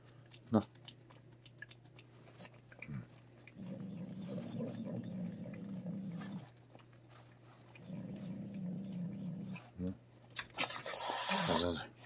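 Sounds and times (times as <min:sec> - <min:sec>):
cat growling: 0:02.8 - 0:06.5, 0:07.8 - 0:10.0.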